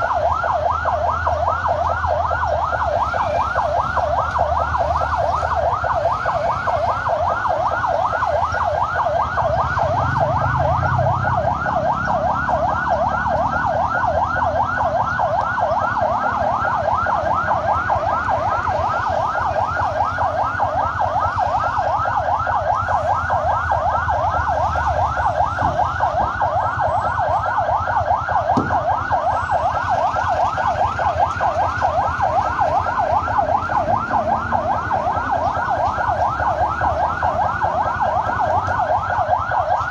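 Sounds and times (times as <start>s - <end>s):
electronic siren yelping: 0.0s - 39.9s.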